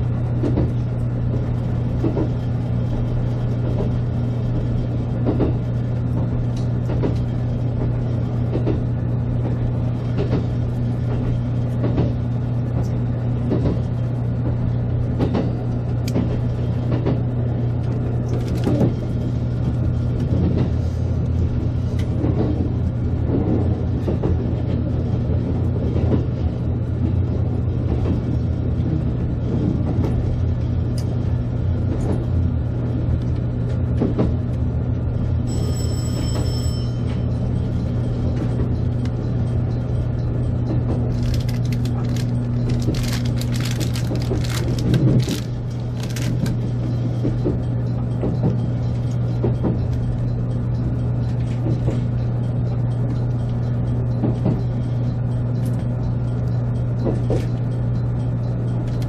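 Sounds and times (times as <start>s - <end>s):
train low hum: 0.0s - 59.0s
wheels clicking on track: 36.3s - 57.7s.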